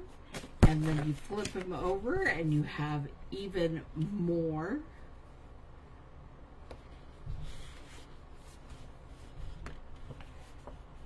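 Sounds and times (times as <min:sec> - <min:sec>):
paper rustling: 0:00.3 - 0:02.2, 0:07.2 - 0:11.0.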